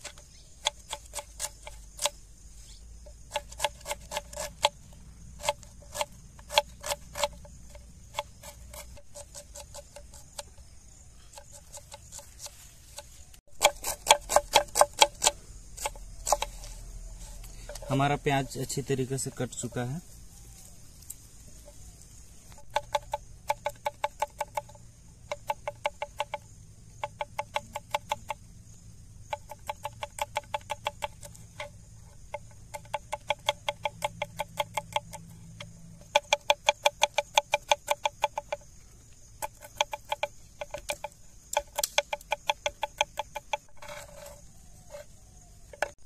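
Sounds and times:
knife chopping on cutting board: 13.6 - 16.5.

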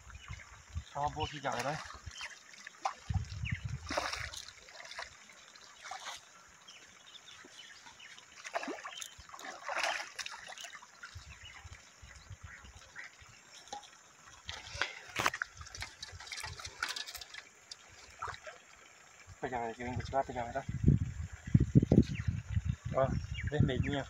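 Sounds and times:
fish splashing in water: 1.4 - 11.8, 12.8 - 19.1.

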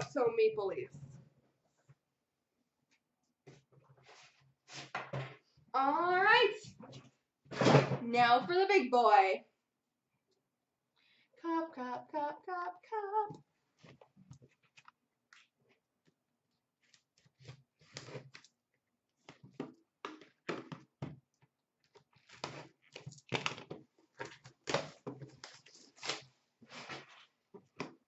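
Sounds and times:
wrapper and cardboard rustling: 21.8 - 27.7.

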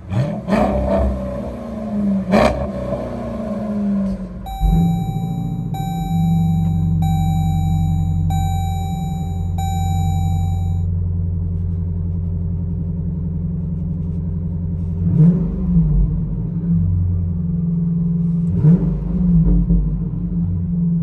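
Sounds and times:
engine throttle blips: 4.5 - 10.8
steady high tone: 4.5 - 10.8.

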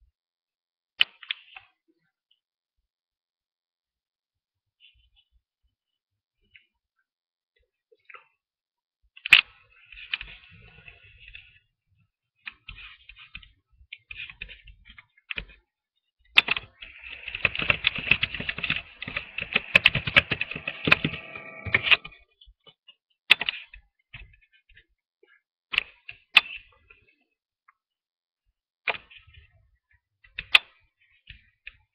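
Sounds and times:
typing on computer keyboard: 16.4 - 22.2.

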